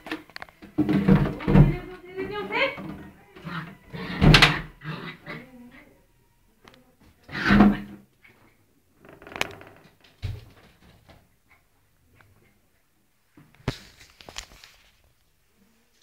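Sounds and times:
plastic jug knocking and scraping: 0.0s - 3.2s.

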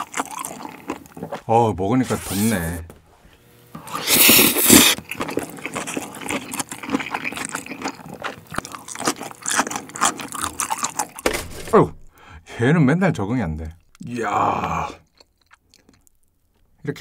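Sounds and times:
close-up wet chewing: 0.0s - 1.5s, 3.9s - 11.2s, 15.0s - 16.7s
loud slurp of noodles: 3.8s - 6.2s.

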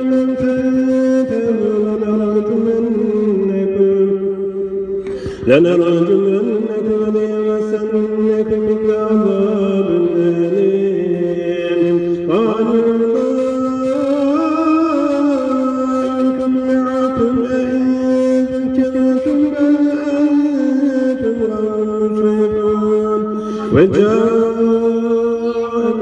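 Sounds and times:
person chanting melismatically: 0.0s - 26.0s.

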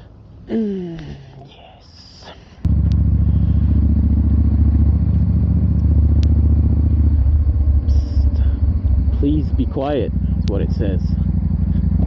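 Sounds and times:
motorcycle engine running: 2.7s - 12.0s.

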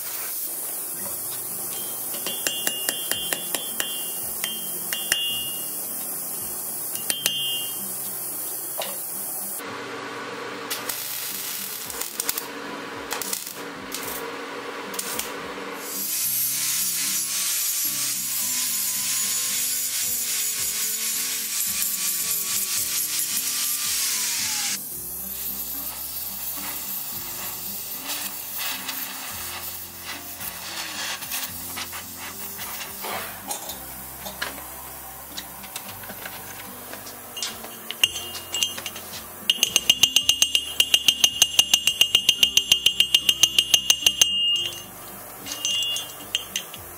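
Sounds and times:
soft background music: 0.2s - 9.7s, 11.0s - 46.9s
angle grinder grinding steel: 0.6s - 8.9s, 31.2s - 46.9s
hammer on hot iron: 1.7s - 6.0s, 6.9s - 8.0s, 37.4s - 46.9s.

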